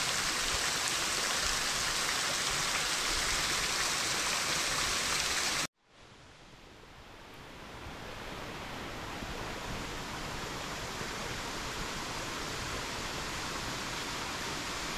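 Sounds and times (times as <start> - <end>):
running water rushing: 0.0 - 5.7.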